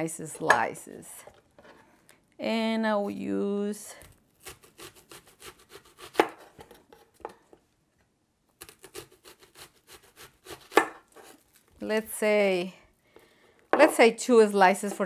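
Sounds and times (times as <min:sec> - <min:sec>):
knife cutting onion on board: 0:04.0 - 0:07.4, 0:08.6 - 0:11.4.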